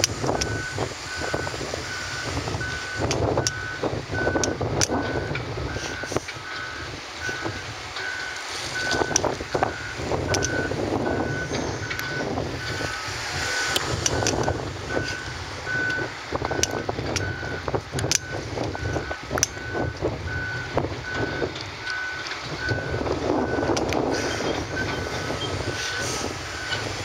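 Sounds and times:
diesel engines running: 0.0 - 27.0
backup alarm beeping: 0.2 - 26.9.

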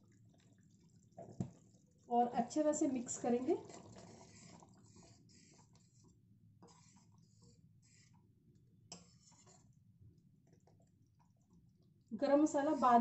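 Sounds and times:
spatula scraping and clicking in pan: 8.9 - 9.8.

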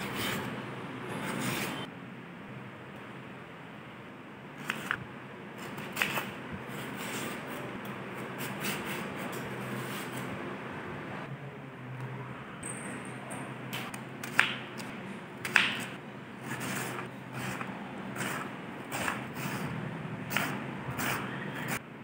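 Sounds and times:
knife scraping plantain: 1.1 - 1.9, 16.4 - 21.8.

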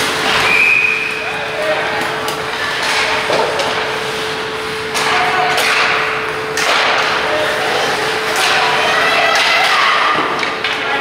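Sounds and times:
steady hum: 0.0 - 11.0
hockey sticks and puck knocking: 4.9 - 7.3, 8.2 - 11.0.

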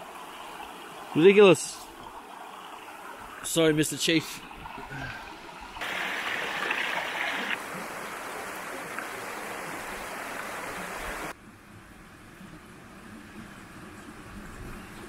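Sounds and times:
water rushing over rocks: 0.0 - 11.4.

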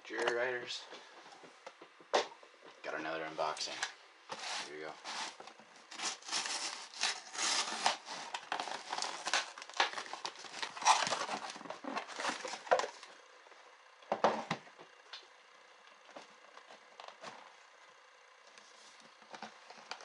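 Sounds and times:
tape tearing: 4.3 - 13.1
cardboard flaps scraping and rustling: 4.3 - 13.2
knife cutting packing tape: 4.4 - 12.6.

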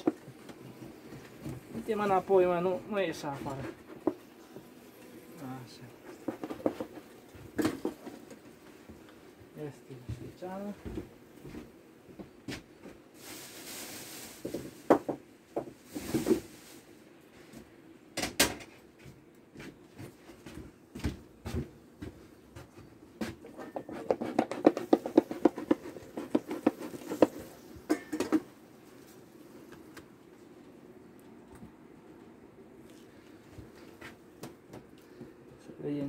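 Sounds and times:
knocks and scrapes on hive frames: 0.0 - 9.5, 22.6 - 30.2
low hum of bees: 0.0 - 13.2, 24.4 - 36.0
smoker hissing puffs: 13.1 - 14.9.

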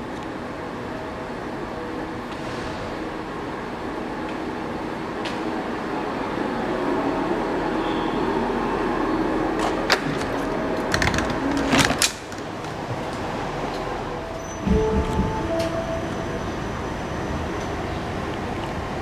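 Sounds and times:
light-rail car humming: 0.0 - 11.5, 12.1 - 19.0
knocks and clatter: 14.5 - 15.8.

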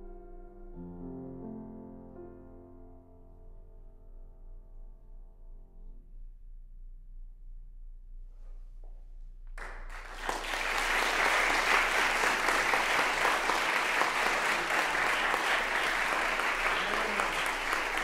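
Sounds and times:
audience applauding: 9.6 - 18.0.

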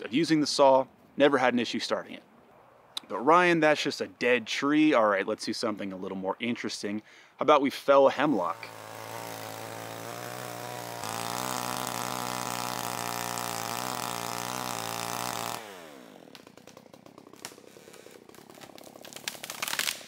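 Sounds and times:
chainsaw cutting wood: 8.2 - 20.0
tree cracking and crashing: 8.8 - 20.0.

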